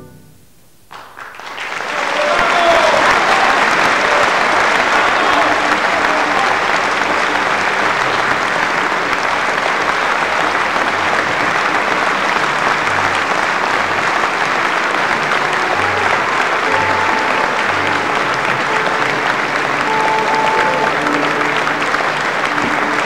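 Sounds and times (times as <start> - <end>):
audience applauding: 0.9 - 23.0.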